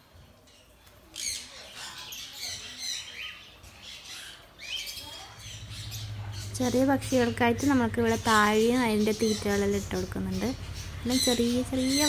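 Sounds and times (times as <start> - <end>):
birds chirping: 0.1 - 12.0.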